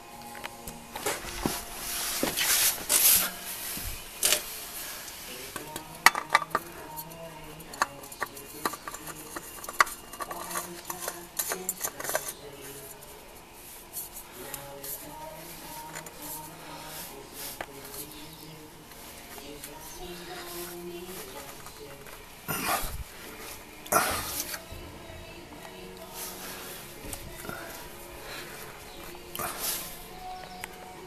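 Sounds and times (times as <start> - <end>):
oil filter scraping: 1.0 - 24.7.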